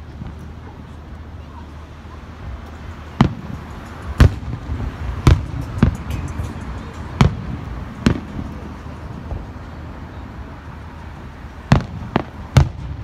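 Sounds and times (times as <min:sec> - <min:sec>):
firework crackles: 0:00.0 - 0:13.0
firework shells booming: 0:03.1 - 0:08.7, 0:11.7 - 0:13.0.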